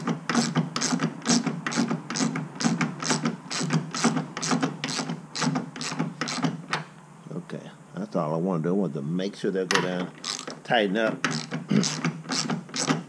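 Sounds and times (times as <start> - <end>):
hand ratchet clicking: 0.0 - 6.6, 10.1 - 10.6, 11.2 - 13.0.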